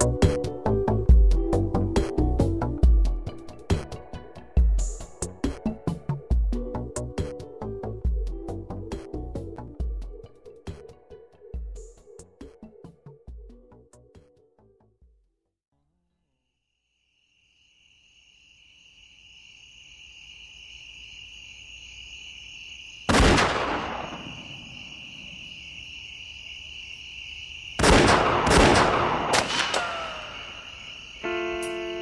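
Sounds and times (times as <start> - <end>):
cicadas buzzing: 16.2 - 23.1, 23.8 - 27.8, 29.0 - 32.0.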